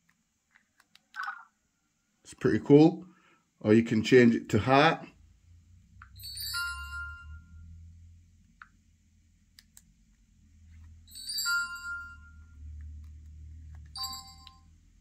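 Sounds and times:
short ringing chime: 0:06.2 - 0:07.6, 0:11.1 - 0:12.4, 0:14.0 - 0:14.6.

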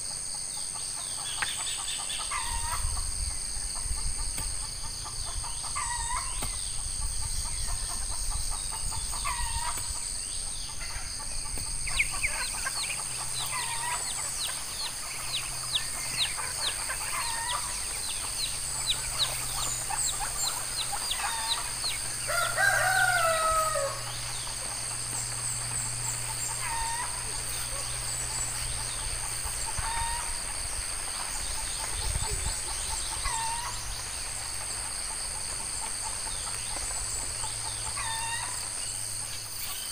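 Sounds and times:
high-pitched insect drone: 0:00.0 - 0:39.9
rooster crowing: 0:21.2 - 0:24.3.

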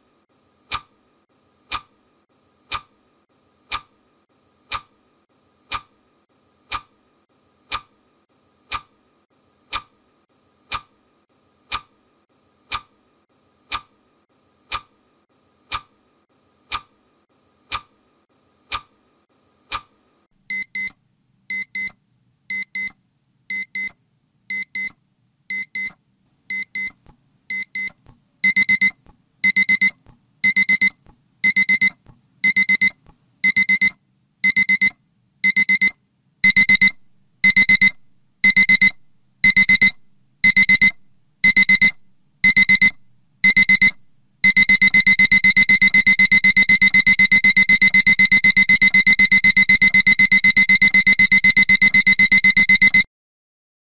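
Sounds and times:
alarm clock beeping: 0:28.5 - 0:53.1.

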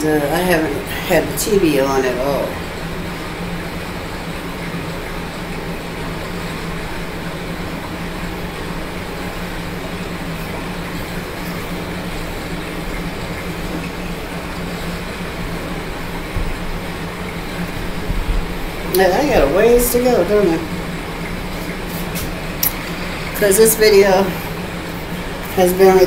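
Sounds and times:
electric fan air rushing: 0:00.0 - 0:26.0
low motor hum: 0:00.0 - 0:26.0.

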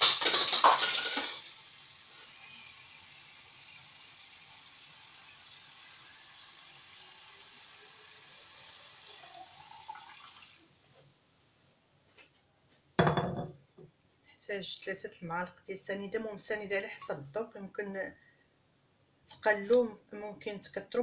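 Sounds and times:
tap water running into glass carafe: 0:09.1 - 0:10.5.

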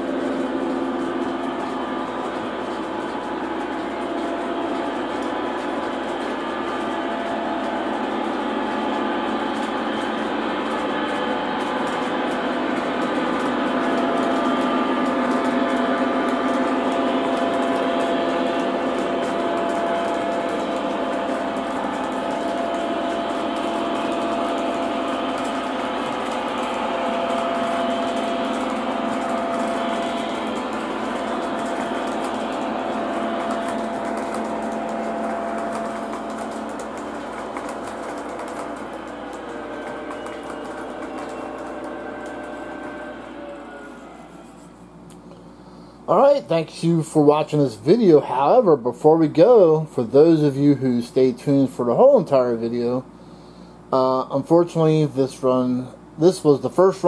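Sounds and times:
train wheels clattering on rails: 0:00.0 - 0:44.0
model train motor hum: 0:00.0 - 0:57.0.

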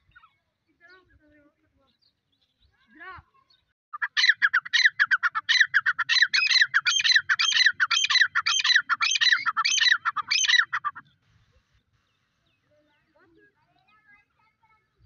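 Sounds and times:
francolin calling shrilly: 0:04.0 - 0:11.0.

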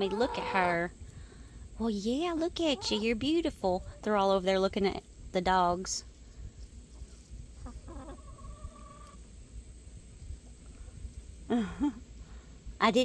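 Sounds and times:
hen calling: 0:00.0 - 0:00.9, 0:02.4 - 0:04.2, 0:07.6 - 0:09.2.

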